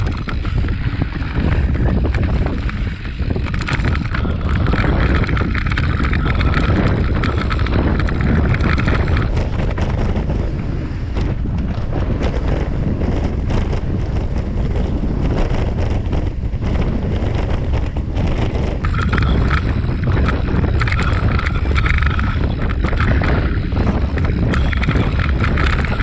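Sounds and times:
bike rattling over rocks: 0.0 - 26.0
wind buffeting microphone: 0.0 - 26.0
tyres crunching on gravel: 18.8 - 26.0.

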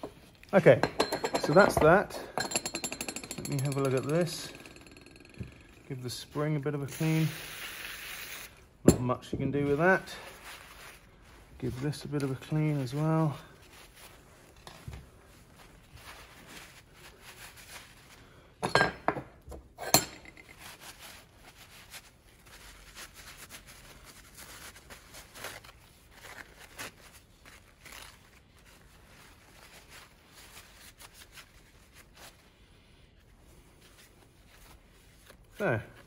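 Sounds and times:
metal parts clinking on wood: 0.8 - 5.9
paper towel rubbing: 9.7 - 18.4, 20.6 - 36.0.

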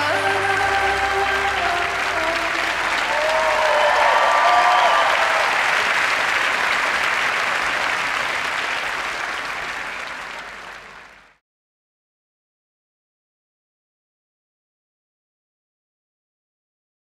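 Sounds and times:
large audience applauding: 0.0 - 11.4.

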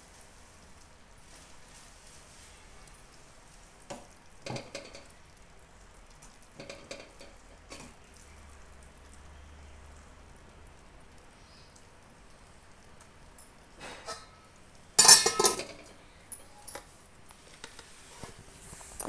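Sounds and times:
faint steady hiss: 0.0 - 19.0
ladle scraping a pan: 13.8 - 14.4, 15.0 - 15.8.

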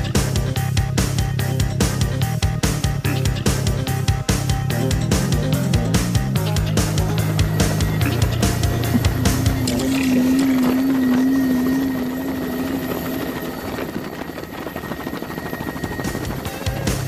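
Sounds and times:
helicopter rotors beating: 0.0 - 17.0
wavering hum: 0.0 - 17.0
engine noise: 3.0 - 15.2
heavy wind: 6.6 - 17.0.

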